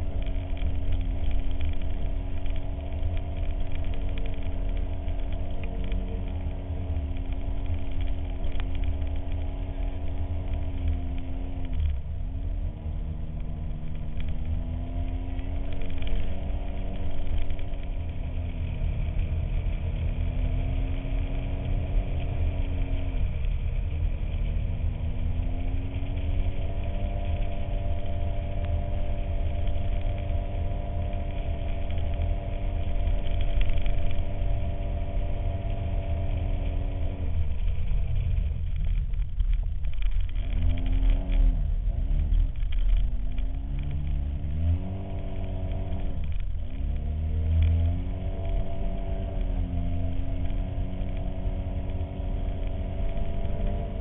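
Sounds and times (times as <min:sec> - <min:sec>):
heavy low rumble: 0:00.0 - 0:54.0
vehicle engine revving: 0:00.0 - 0:54.0.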